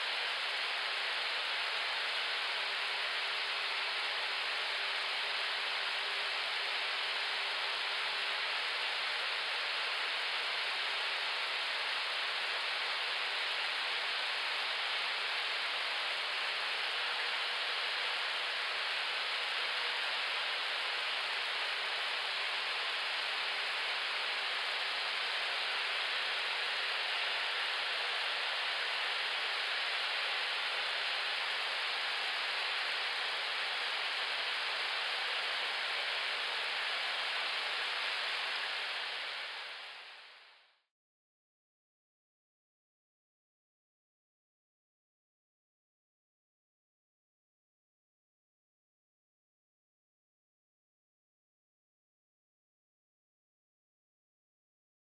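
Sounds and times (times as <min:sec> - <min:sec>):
faint steady hum: 0:00.0 - 0:40.9.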